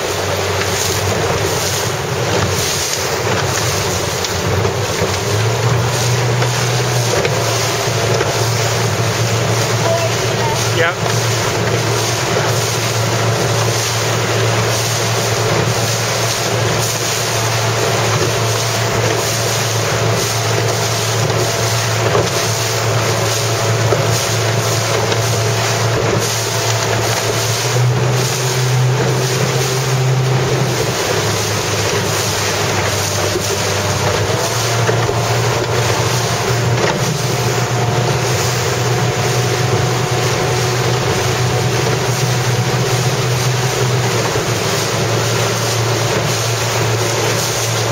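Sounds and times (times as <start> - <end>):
motorboat engine running: 0.0 - 47.9
water rushing past hull: 0.0 - 47.9.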